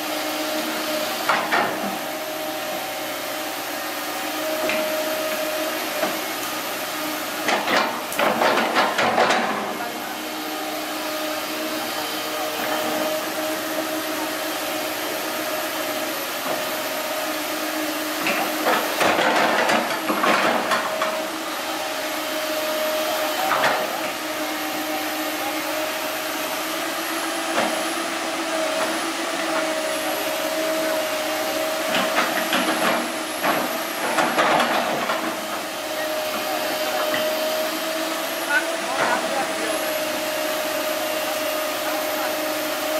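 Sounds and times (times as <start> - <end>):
excavator engine whine: 0.0 - 42.9.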